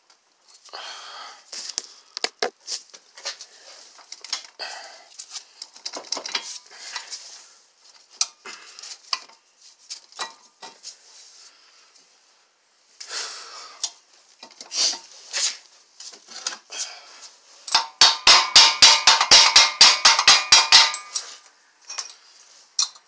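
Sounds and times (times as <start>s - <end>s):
metallic clinks and rattles: 17.7s - 23.0s.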